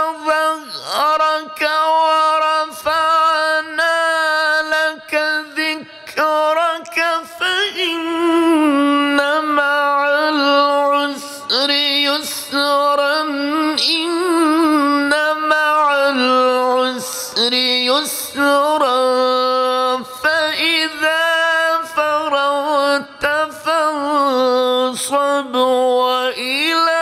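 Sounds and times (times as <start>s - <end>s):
man chanting melodically: 0.0s - 27.0s.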